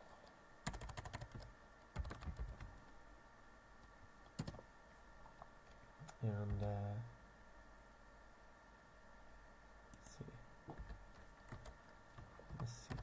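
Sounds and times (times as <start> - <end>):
keyboard typing: 0.6 - 2.7, 4.4 - 4.6, 11.4 - 13.0.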